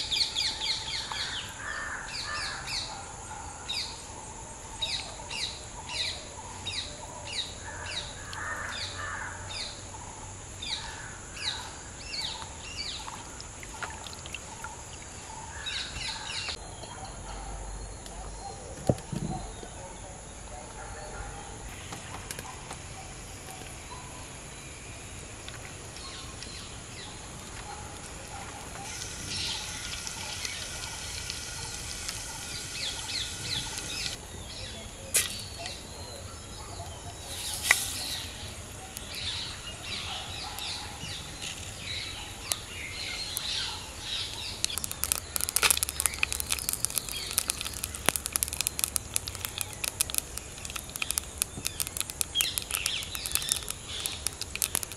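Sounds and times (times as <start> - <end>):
birds chirping: 0.0 - 54.9
hot oil sizzling and crackling: 28.0 - 34.2, 37.2 - 54.9
sharp pops: 35.1 - 35.8, 37.2 - 54.9.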